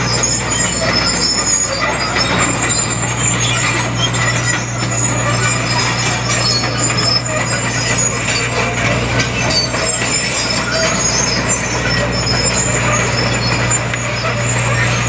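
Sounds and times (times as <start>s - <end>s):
excavator diesel engine humming: 0.0s - 15.0s
short high squeaks: 0.0s - 15.0s.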